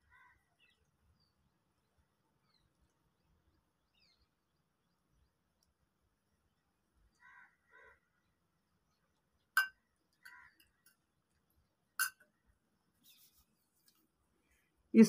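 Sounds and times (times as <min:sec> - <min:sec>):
faint bird calls: 0:07.2 - 0:08.2.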